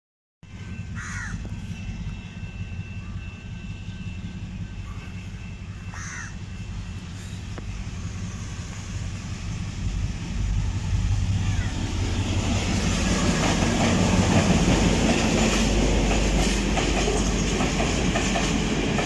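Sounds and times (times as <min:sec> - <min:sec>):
diesel locomotive rumble: 0:00.4 - 0:19.0
crow cawing: 0:01.0 - 0:01.4, 0:05.8 - 0:06.4, 0:11.4 - 0:11.8.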